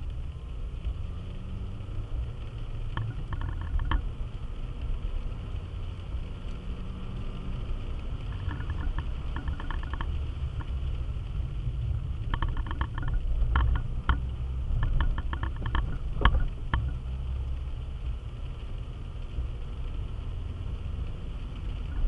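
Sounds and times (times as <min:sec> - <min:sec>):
car engine rumble: 0:00.0 - 0:22.0
tyres on wet road: 0:00.0 - 0:22.0
light rattling clicks: 0:02.2 - 0:05.6, 0:07.3 - 0:17.0.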